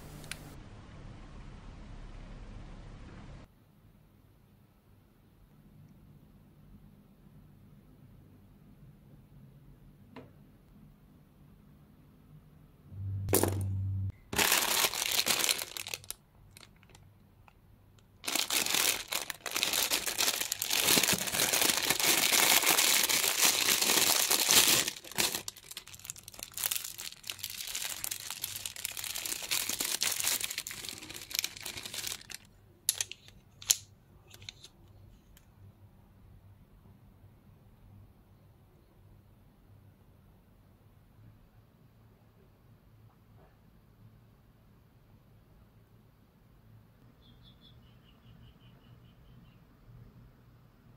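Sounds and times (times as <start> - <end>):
plastic bag crinkling: 14.3 - 17.6, 18.2 - 34.7.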